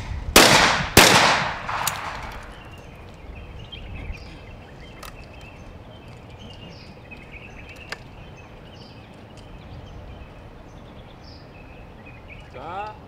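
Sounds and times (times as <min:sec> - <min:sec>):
birds chirping: 0:00.0 - 0:13.0
shotgun snapping shut: 0:00.4 - 0:02.6.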